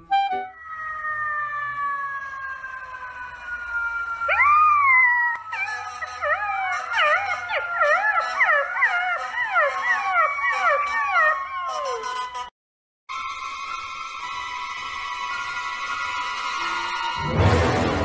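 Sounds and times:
puppy howling: 4.2 - 12.1.

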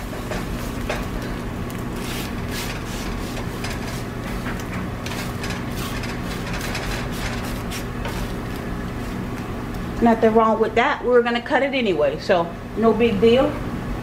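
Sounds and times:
spatula scraping egg in pan: 2.0 - 9.2.

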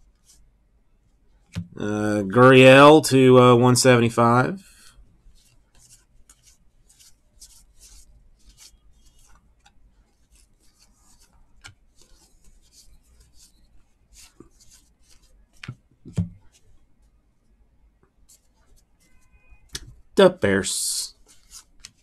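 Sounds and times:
cards swishing: 5.8 - 9.4, 21.1 - 22.0.

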